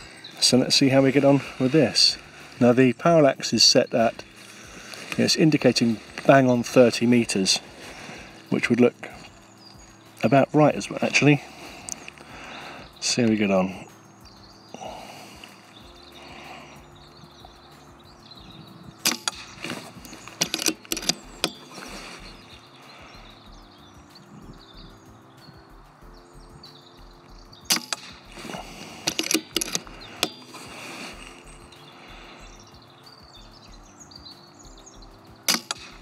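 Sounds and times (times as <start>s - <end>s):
air rifle shot crack: 19.0s - 19.8s, 27.7s - 28.3s, 35.5s - 36.0s.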